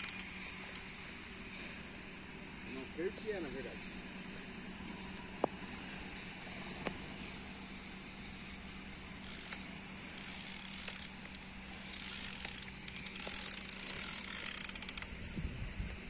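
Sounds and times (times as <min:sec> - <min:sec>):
fishing reel whirring: 0:00.0 - 0:02.2, 0:08.4 - 0:15.5
low steady hum: 0:00.0 - 0:16.0.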